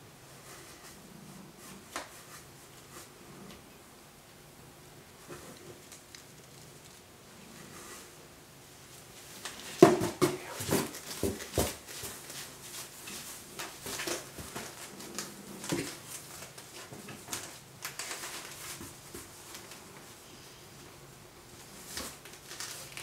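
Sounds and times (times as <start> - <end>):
cardboard box knocking: 9.8 - 11.8.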